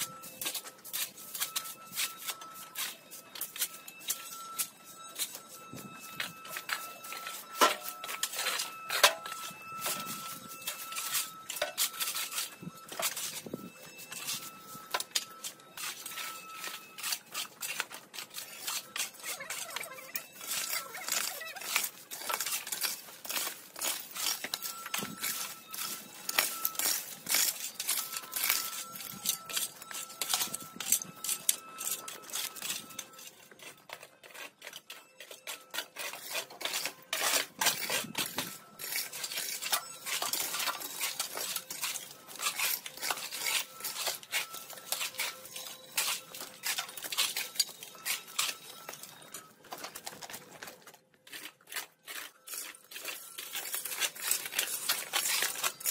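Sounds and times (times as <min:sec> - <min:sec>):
shovels and rakes scraping ground: 0:00.0 - 0:55.9
dry branches and leaves crackling: 0:36.0 - 0:55.9.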